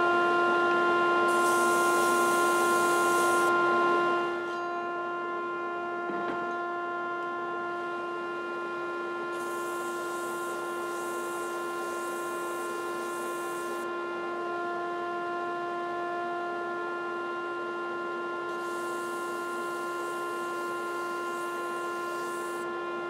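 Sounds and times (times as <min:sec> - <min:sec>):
belt grinder humming: 0:01.3 - 0:03.5.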